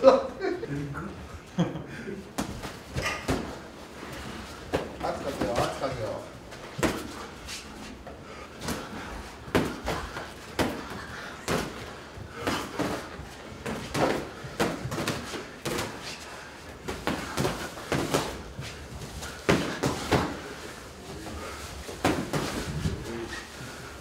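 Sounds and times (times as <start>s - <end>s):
boxing gloves smacking: 8.6s - 16.2s, 16.9s - 18.5s, 19.2s - 20.5s, 21.9s - 22.8s.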